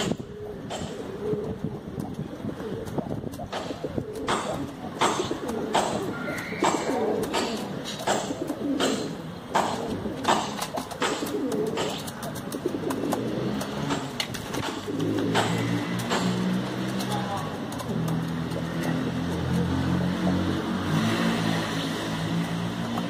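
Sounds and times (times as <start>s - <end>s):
pigeons cooing: 0.0s - 23.0s
sharp clicks or taps: 2.8s - 19.7s.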